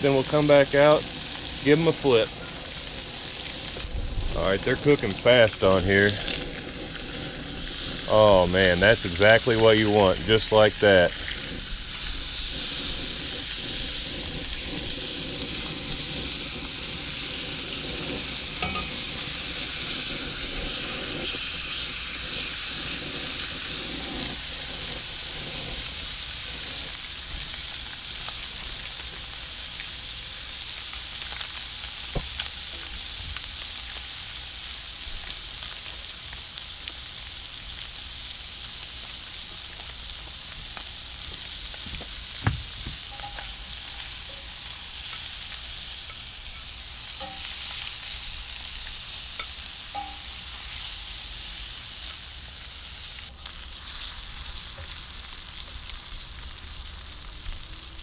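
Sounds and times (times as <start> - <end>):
fish sizzling in a skillet: 0.0 - 58.0.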